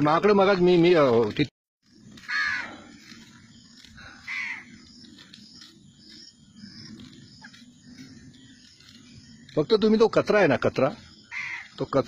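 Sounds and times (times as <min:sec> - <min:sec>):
crows cawing: 0:02.2 - 0:03.0, 0:04.0 - 0:04.8, 0:11.3 - 0:11.8.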